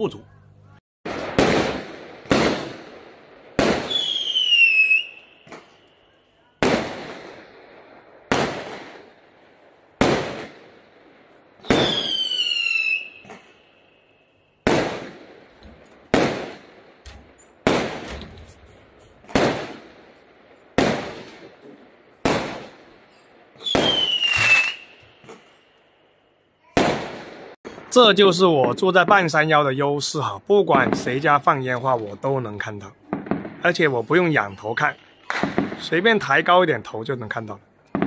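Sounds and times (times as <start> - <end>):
fireworks bangs with echo: 1.1 - 13.6, 14.6 - 25.6, 26.6 - 29.5, 30.6 - 31.8, 32.6 - 36.6
whistling firework shell: 3.8 - 6.5, 11.6 - 14.2, 23.1 - 25.7.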